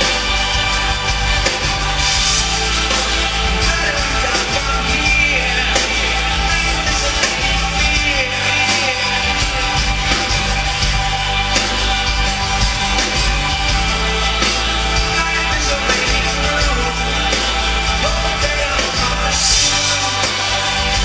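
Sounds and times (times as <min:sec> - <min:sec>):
strummed acoustic guitar: 0:00.0 - 0:21.0
man singing: 0:02.3 - 0:10.5, 0:14.9 - 0:21.0.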